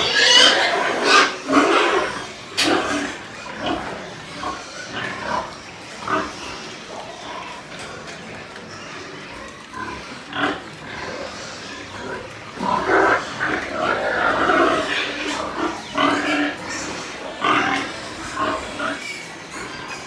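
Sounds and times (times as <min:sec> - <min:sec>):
pigs calling: 0:00.0 - 0:20.0.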